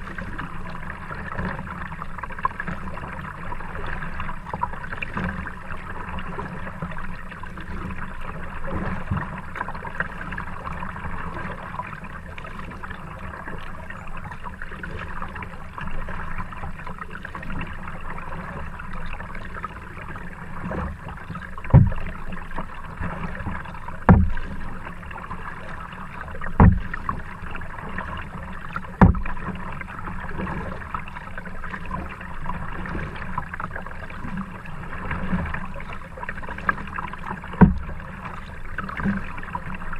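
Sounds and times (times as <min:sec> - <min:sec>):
water washing against kayak hull: 0:00.0 - 0:39.9
sharp thumps: 0:21.7 - 0:22.1, 0:24.1 - 0:24.5, 0:26.6 - 0:27.0, 0:29.0 - 0:29.4.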